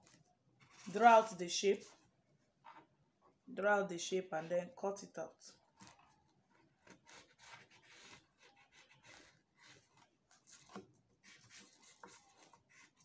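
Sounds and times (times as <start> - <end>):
pencil scratching on paper: 5.8 - 13.0.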